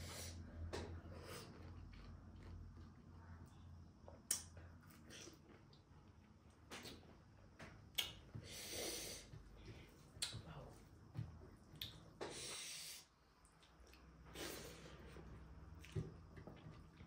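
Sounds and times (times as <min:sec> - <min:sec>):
hissing breaths: 0:08.4 - 0:09.3.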